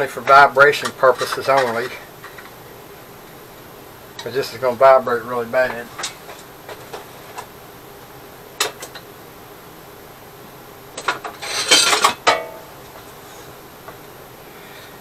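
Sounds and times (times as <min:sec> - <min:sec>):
metal tools clinking and rattling: 0:11.0 - 0:12.5.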